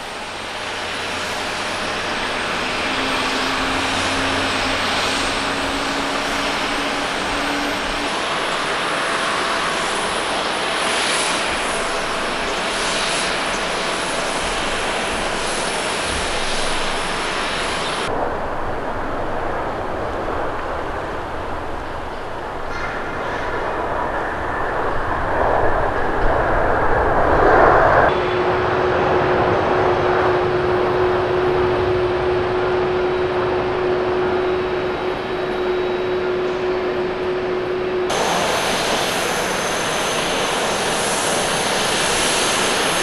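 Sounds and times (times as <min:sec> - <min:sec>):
jet engines rushing and whining: 0:00.0 - 0:43.0.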